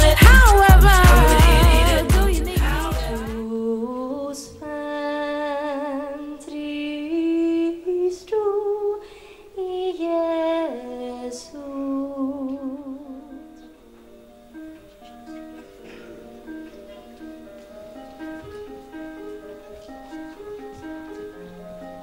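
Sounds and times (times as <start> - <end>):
woman singing into a microphone: 0.0 - 13.7.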